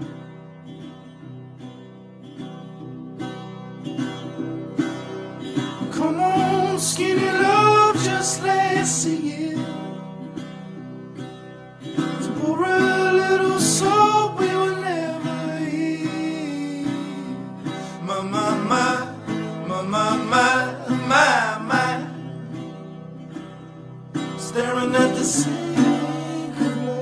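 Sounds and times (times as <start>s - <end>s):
acoustic guitar picking: 0.0s - 27.0s
person singing: 5.9s - 9.9s, 12.2s - 22.2s, 24.4s - 27.0s.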